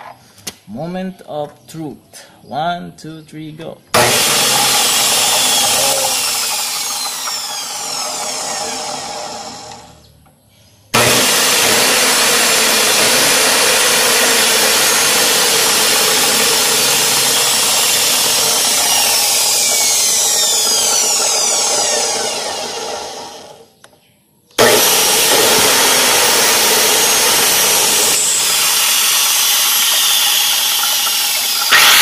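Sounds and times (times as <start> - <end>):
electric motor whine: 4.0 - 10.1, 11.0 - 23.7, 24.6 - 32.0.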